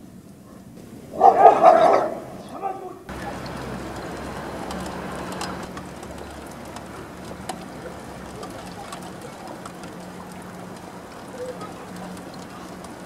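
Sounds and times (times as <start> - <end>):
low steady hum: 0.0 - 13.0
rain falling: 0.0 - 13.0
drops ticking close by: 3.1 - 13.0.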